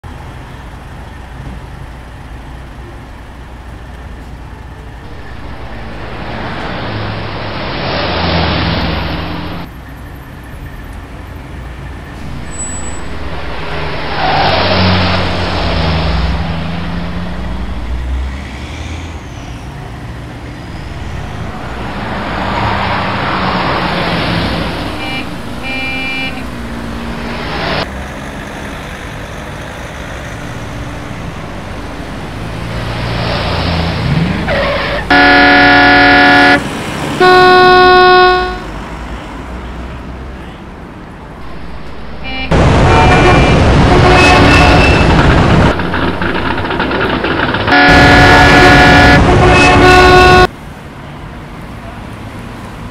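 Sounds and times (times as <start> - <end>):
vehicles driving past: 0.0 - 52.9
car horn beeping: 5.1 - 9.7, 20.6 - 27.8, 30.4 - 33.1, 34.4 - 38.7, 41.4 - 50.5.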